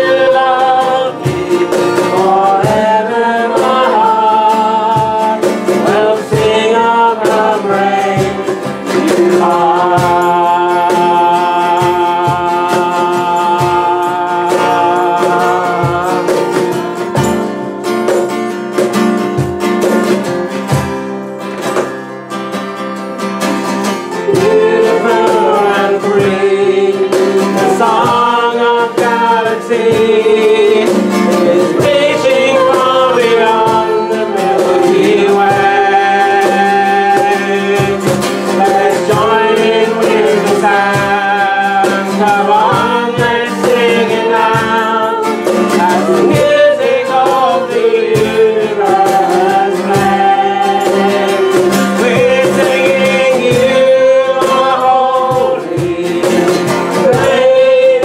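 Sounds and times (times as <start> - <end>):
woman singing: 0.0 - 16.3, 24.3 - 58.0
strummed acoustic guitar: 0.0 - 58.0.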